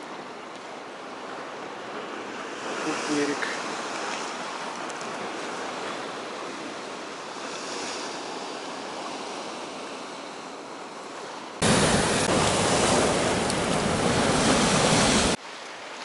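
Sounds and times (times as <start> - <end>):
storm surf rushing: 11.6 - 15.4
wind buffeting microphone: 11.6 - 15.4.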